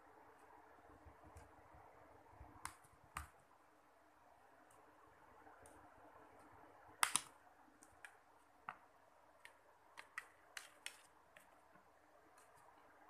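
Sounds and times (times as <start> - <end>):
plastic phone cover clips clicking: 7.0 - 7.3.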